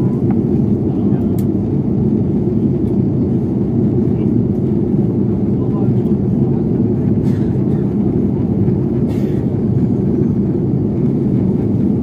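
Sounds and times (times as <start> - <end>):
jet airliner cabin drone: 0.0 - 12.0.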